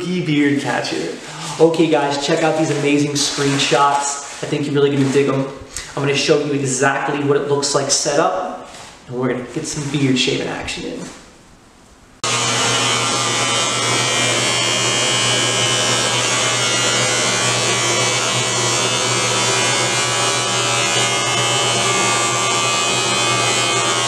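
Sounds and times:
electric beard trimmer buzzing: 0:12.2 - 0:24.0.

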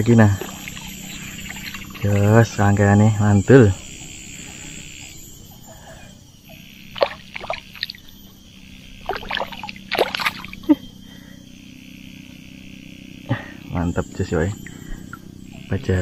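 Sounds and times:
insects chirring: 0:00.0 - 0:16.0
fish splashing at water surface: 0:06.9 - 0:08.0, 0:09.0 - 0:10.6.

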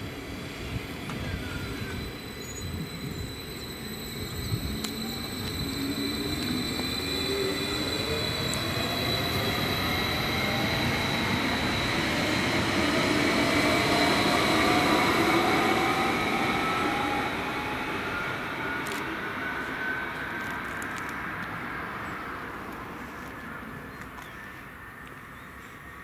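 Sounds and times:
train traction motor whine: 0:00.0 - 0:23.0
wheel and track rumble: 0:00.0 - 0:24.1
thin high tone: 0:01.3 - 0:12.7.

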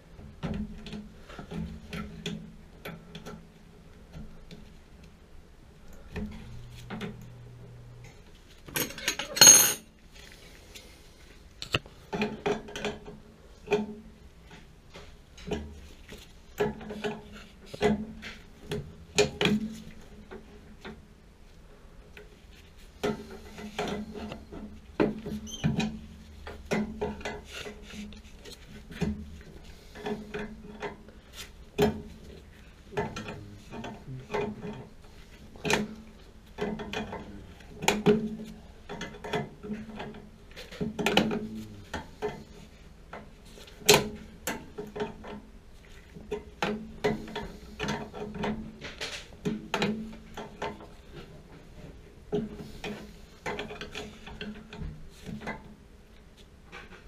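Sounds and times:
metal tools clinking and scraping: 0:08.7 - 0:09.9.

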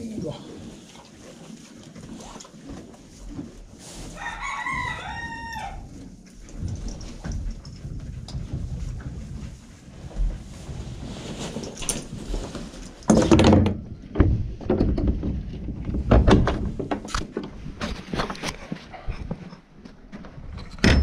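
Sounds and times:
horse blanket rustling: 0:00.6 - 0:13.1.

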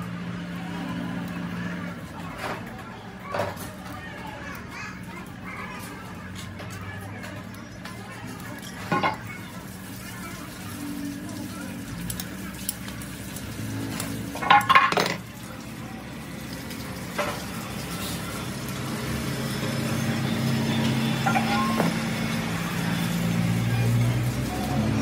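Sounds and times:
metal parts clinking: 0:14.4 - 0:15.2.

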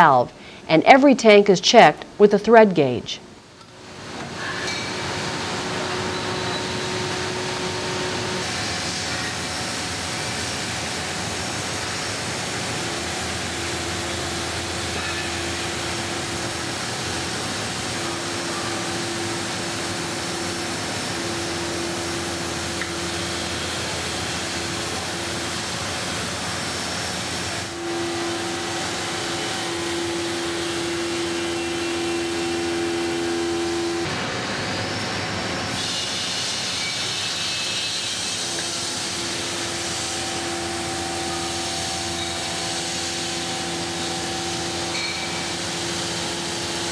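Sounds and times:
machine tool running: 0:04.4 - 0:46.9
steady hum: 0:05.1 - 0:35.8
hiss: 0:35.8 - 0:46.7.

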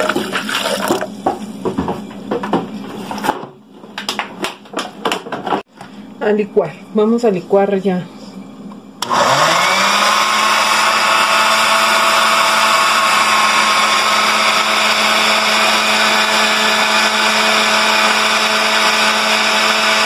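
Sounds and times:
blender running: 0:09.0 - 0:20.0.

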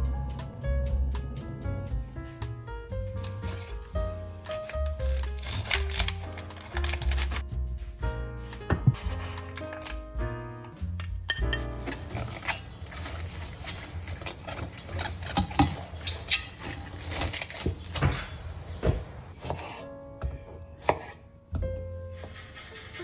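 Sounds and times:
background music: 0:00.0 - 0:18.3, 0:19.3 - 0:23.0
cling film crinkling: 0:03.2 - 0:07.4, 0:09.0 - 0:10.2, 0:11.0 - 0:18.0.

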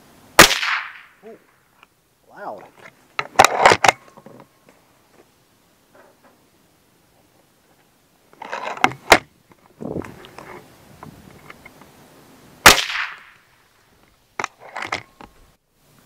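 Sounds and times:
air rifle shot: 0:00.4 - 0:01.2, 0:12.6 - 0:13.4.

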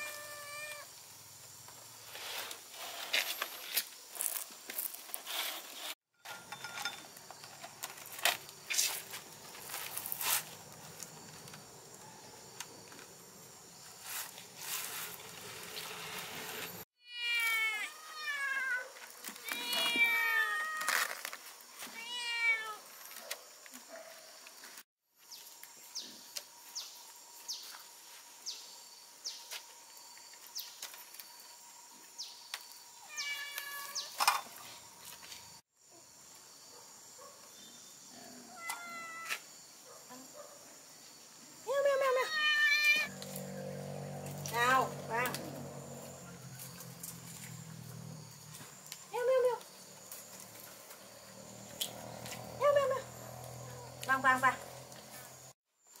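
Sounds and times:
cat meowing: 0:00.0 - 0:00.9, 0:17.0 - 0:21.0, 0:22.0 - 0:22.8, 0:33.1 - 0:34.0, 0:38.5 - 0:39.4, 0:42.2 - 0:43.1.

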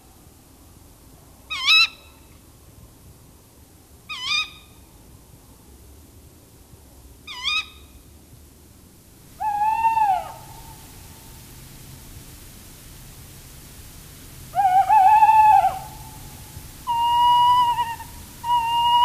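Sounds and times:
owl calling: 0:01.5 - 0:02.1, 0:04.1 - 0:04.7, 0:07.3 - 0:07.8, 0:09.4 - 0:10.9, 0:14.5 - 0:19.0.

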